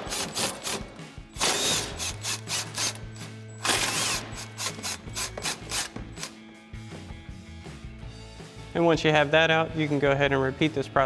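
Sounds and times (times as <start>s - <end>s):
impact wrench hammering: 0.0s - 6.3s.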